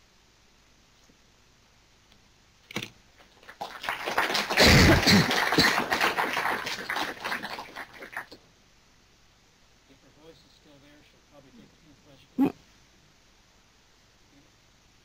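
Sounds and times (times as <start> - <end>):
audience applauding: 3.3 - 8.4.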